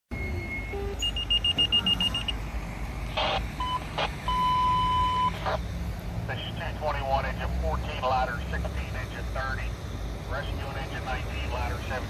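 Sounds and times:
fast high beeps: 0:00.2 - 0:02.4, 0:03.3 - 0:05.4
radio alert tones: 0:00.4 - 0:02.4, 0:03.0 - 0:05.6, 0:10.3 - 0:12.0
radio hiss bursts: 0:03.0 - 0:04.3, 0:06.3 - 0:12.0.

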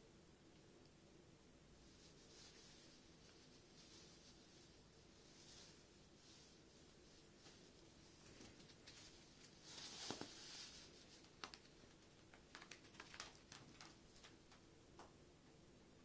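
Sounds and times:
crinkle cushion foil rustling: 0:01.8 - 0:14.6
faint clicks and taps: 0:11.2 - 0:15.2.

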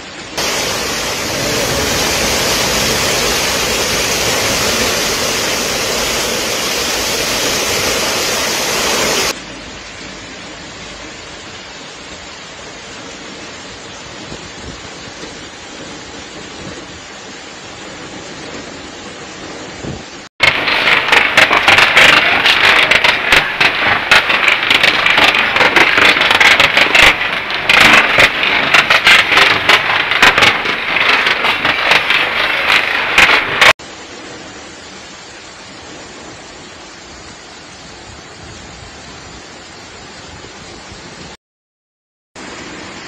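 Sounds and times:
rain and running floodwater: 0:00.0 - 0:22.4
hail clattering on surfaces: 0:00.4 - 0:09.4, 0:20.4 - 0:33.8.

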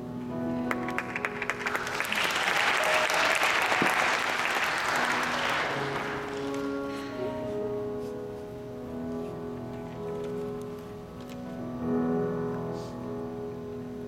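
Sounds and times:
audience applauding: 0:00.6 - 0:06.9.

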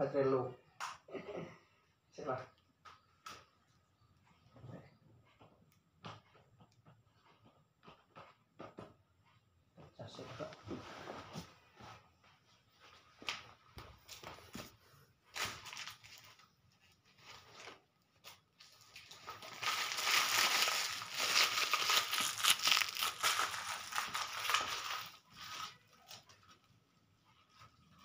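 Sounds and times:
packaging crinkling: 0:17.3 - 0:26.5.

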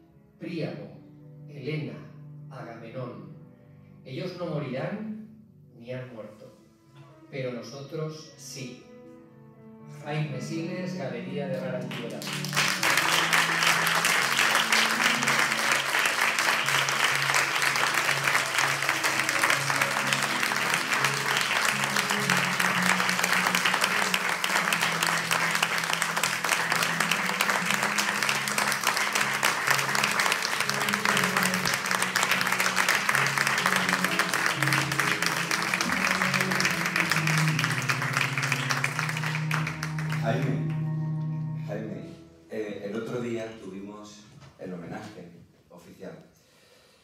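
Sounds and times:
instrumental music: 0:08.6 - 0:44.5
audience applauding: 0:11.8 - 0:41.0.

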